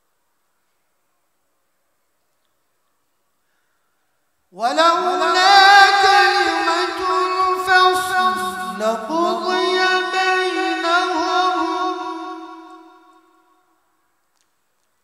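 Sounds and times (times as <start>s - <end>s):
man chanting melodically: 4.6s - 13.4s.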